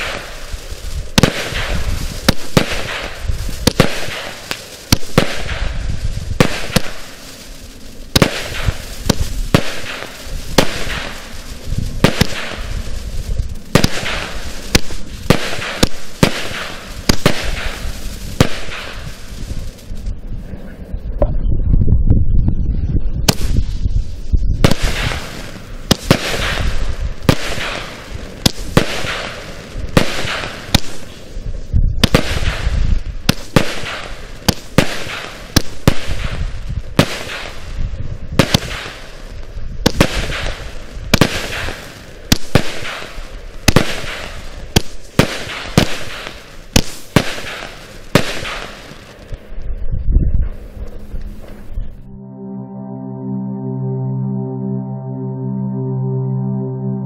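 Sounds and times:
crackling star shells: 0.0s - 20.2s, 38.5s - 49.8s
fireworks bangs: 0.0s - 20.7s, 23.2s - 49.8s
low rumble: 19.2s - 24.9s, 49.4s - 57.0s.

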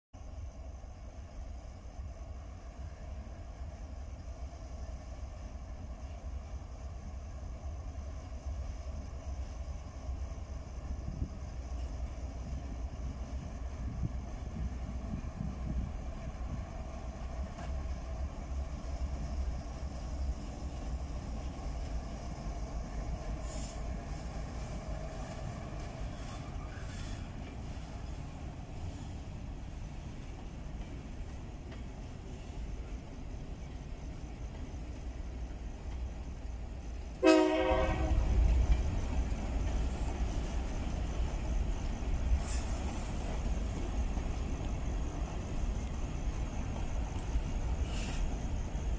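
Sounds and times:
diesel locomotive rumbling: 0.2s - 48.9s
train horn blast: 37.2s - 38.5s.

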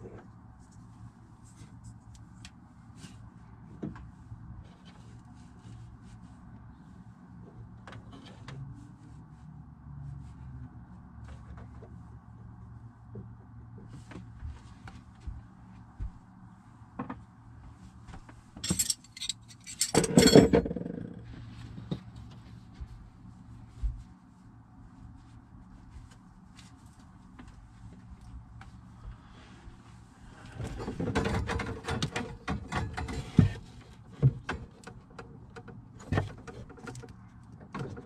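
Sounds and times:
spanners clattering on floor: 18.6s - 20.8s.

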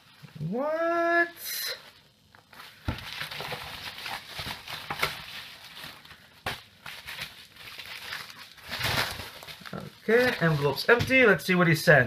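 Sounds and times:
plastic mailer rustling: 1.7s - 11.5s.

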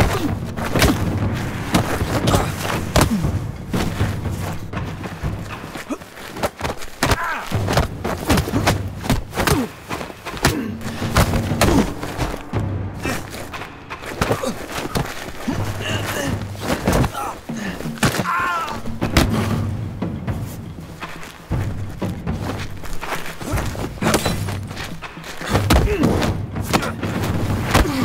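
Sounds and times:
fight thumps: 0.0s - 19.8s, 21.0s - 28.0s
low music score: 0.0s - 28.0s
grunts of effort: 13.0s - 19.7s, 25.4s - 27.0s, 27.6s - 28.0s.

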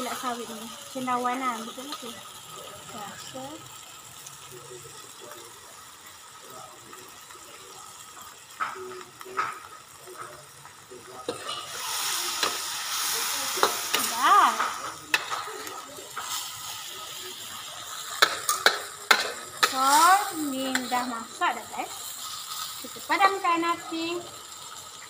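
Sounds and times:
mushrooms sizzling in wok: 0.0s - 25.0s
metal spatula scraping wok: 11.3s - 16.8s.

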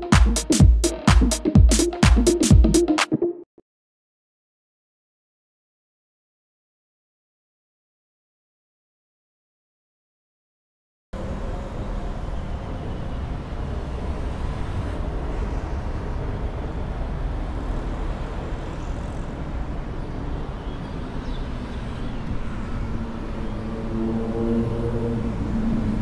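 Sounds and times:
traffic engines idling: 11.2s - 24.0s
droning engine: 23.0s - 26.0s.

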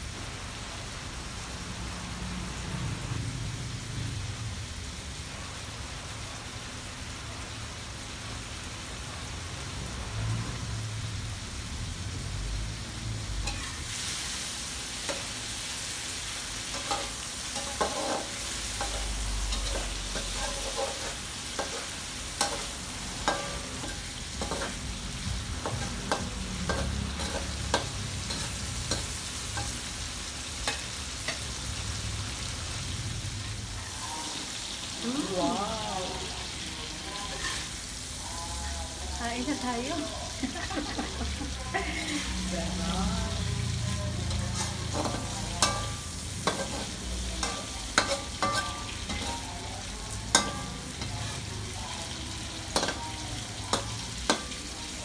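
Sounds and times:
shrimp sizzling in a wok: 0.0s - 55.0s
spatula scraping a wok: 13.4s - 31.7s, 36.4s - 38.1s, 41.8s - 42.6s, 43.6s - 55.0s.

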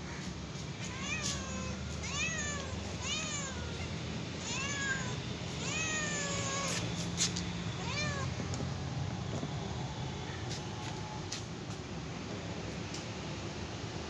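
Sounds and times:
kitten meowing: 0.8s - 6.9s, 7.8s - 8.4s.

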